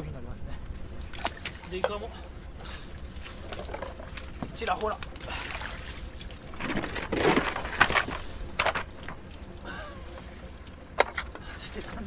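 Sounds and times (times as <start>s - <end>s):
steady low hum: 0.0s - 12.0s
debris scraping on wet deck: 6.5s - 9.0s.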